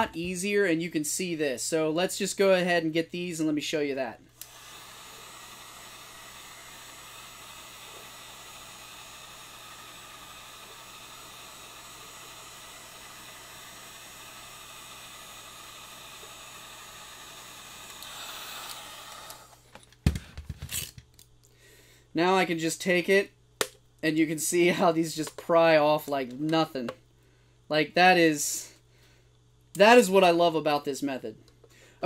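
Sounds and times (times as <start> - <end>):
heat gun blowing hot air: 4.4 - 19.6.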